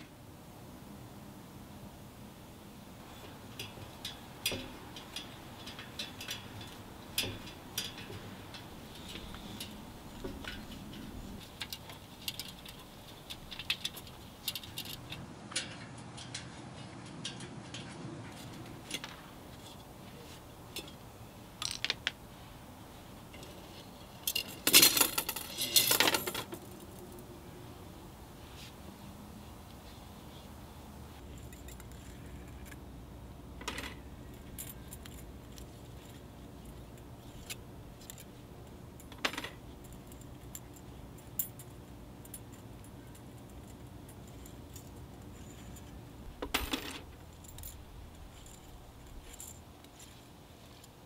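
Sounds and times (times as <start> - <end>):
rim clattering off spokes: 3.0 - 19.8.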